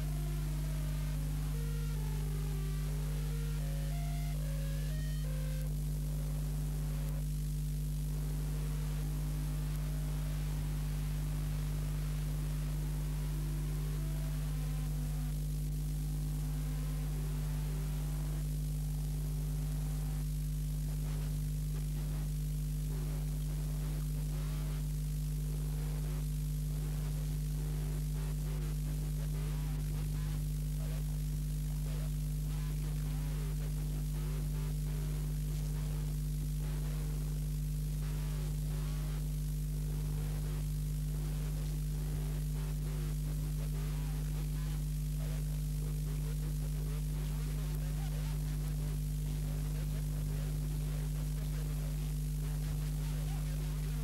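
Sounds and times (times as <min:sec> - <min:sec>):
faint music: 0:00.0 - 0:20.4
electrical mains hum: 0:00.0 - 0:54.0.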